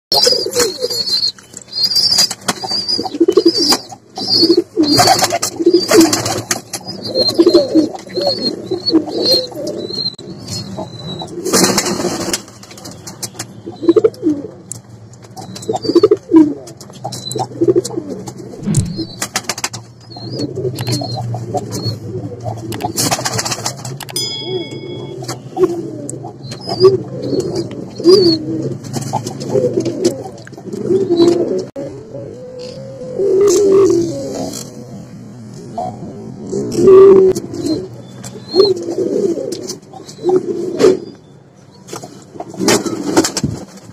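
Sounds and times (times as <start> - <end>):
pigeons cooing: 0.1 - 12.4, 13.6 - 14.7, 15.4 - 19.4, 20.1 - 23.9, 24.7 - 41.2
wings flapping: 22.8 - 24.0.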